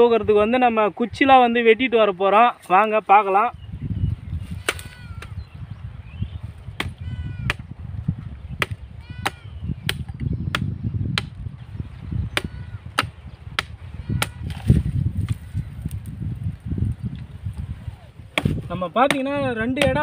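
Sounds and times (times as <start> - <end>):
billhook chopping branches: 4.5 - 5.4, 6.8 - 7.7, 8.6 - 11.4, 12.3 - 16.0, 18.3 - 20.0.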